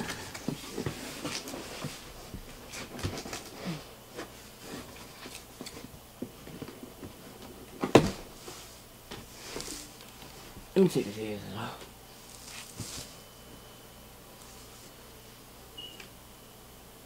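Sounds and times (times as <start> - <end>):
cardboard box handling noises: 12.2 - 13.2.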